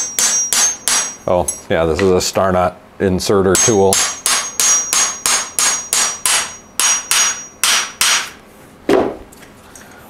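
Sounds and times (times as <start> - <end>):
hammer tapping metal tool: 0.0 - 2.1, 3.5 - 8.4.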